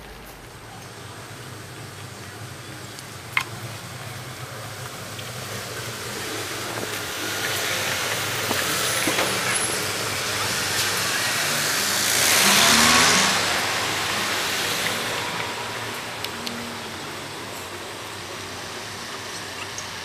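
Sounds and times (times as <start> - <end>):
traffic hum: 0.0 - 20.0
vehicle passing close by: 5.4 - 17.5.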